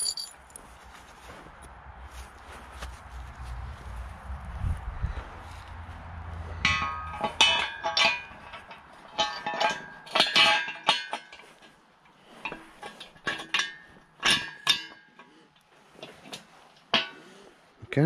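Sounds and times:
steel parts clanking: 0.0 - 0.6, 6.6 - 17.4.

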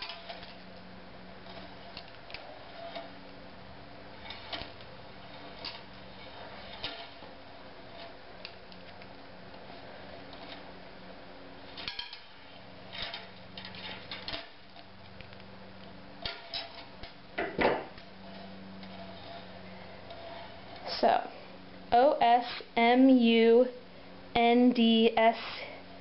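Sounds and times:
steady low hum: 0.0 - 26.0
pliers clicking and scraping wire: 7.9 - 9.6.

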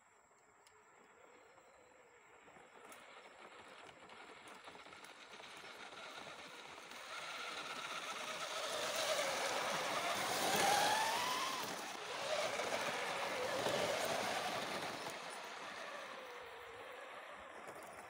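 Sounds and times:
electric motor and gear whine: 0.5 - 18.0
tyres rolling on sand: 5.2 - 18.0.

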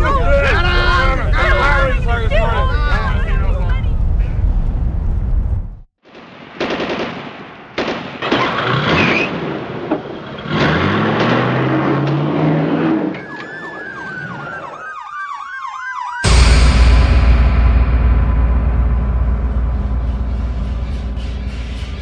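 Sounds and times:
emergency siren warbling: 13.1 - 16.3
music: 16.3 - 22.0.

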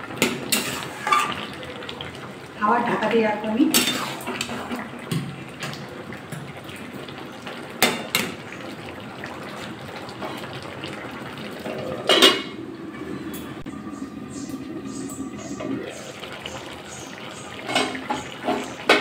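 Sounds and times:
metal lid clattering on pan: 17.6 - 19.0.

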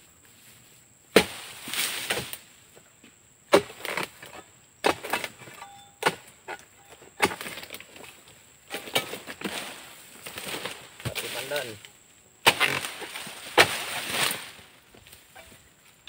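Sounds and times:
leafy rustle: 0.0 - 2.7, 7.3 - 16.0
chisel chopping into palm fronds: 1.1 - 2.4, 3.5 - 6.6, 7.2 - 8.1, 8.7 - 11.8, 12.4 - 14.6.

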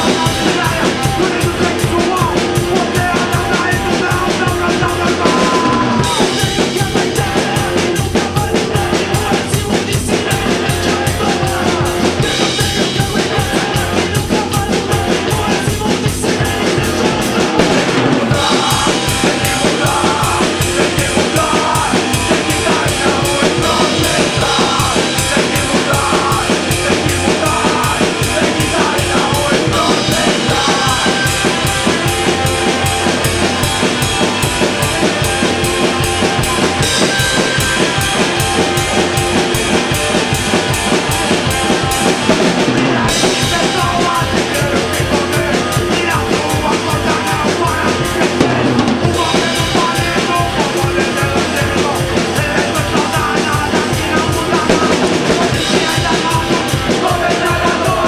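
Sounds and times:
drum kit fast beat: 0.0 - 58.0
fast punk rock song: 0.0 - 58.0.

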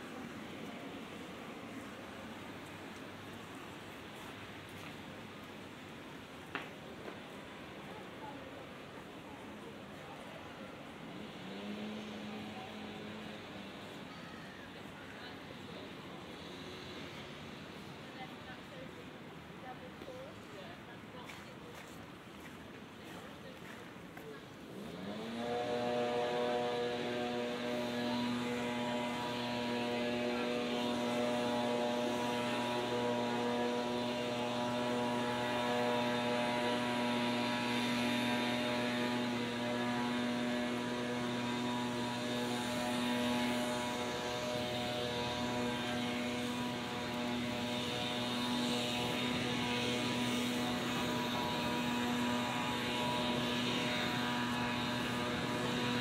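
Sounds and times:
machine humming with whine: 24.8 - 56.0.

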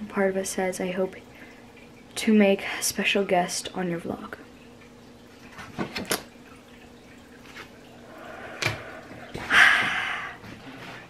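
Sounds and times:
faint steady hum: 0.0 - 11.0
person gasping: 8.1 - 10.4.

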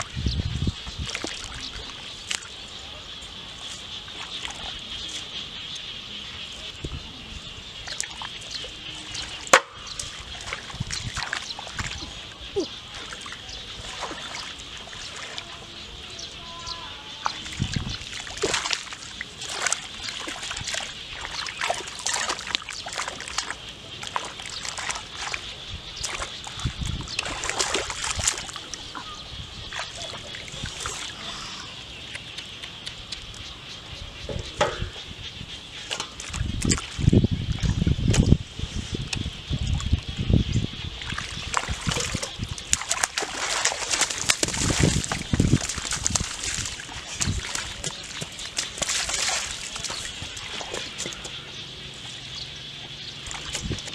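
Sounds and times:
hands splashing in muddy water: 1.0 - 2.6, 9.1 - 15.7, 17.2 - 31.3, 41.0 - 51.4, 53.2 - 53.9.

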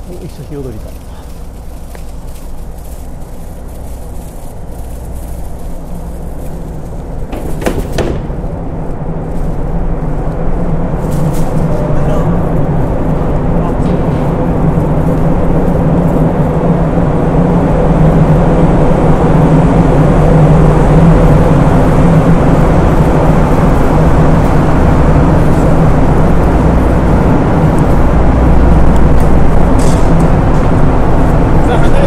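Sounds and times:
ferry machinery droning: 0.0 - 32.0.

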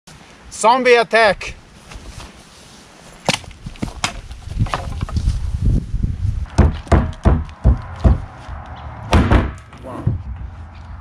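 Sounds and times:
low rumble: 7.3 - 11.0.

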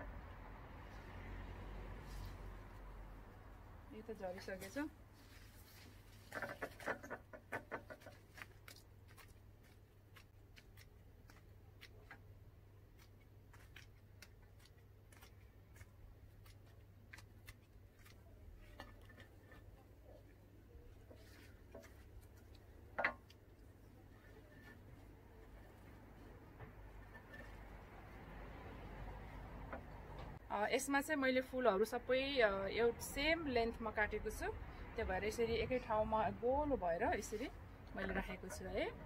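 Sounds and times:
stems being stripped and trimmed: 4.4 - 19.8.

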